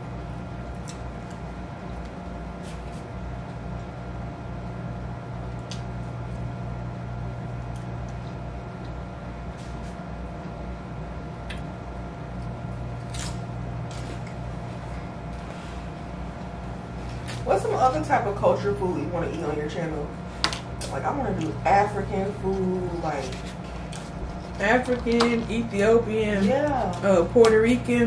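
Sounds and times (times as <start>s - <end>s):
low electrical hum: 0.0s - 28.0s
chewing clicks and smacks: 0.7s - 2.2s, 5.6s - 5.9s, 11.4s - 11.7s.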